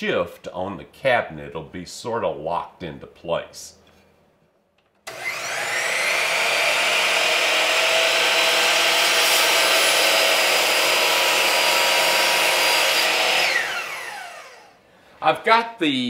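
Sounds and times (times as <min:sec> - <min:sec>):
miter saw motor whining: 0:05.1 - 0:14.8.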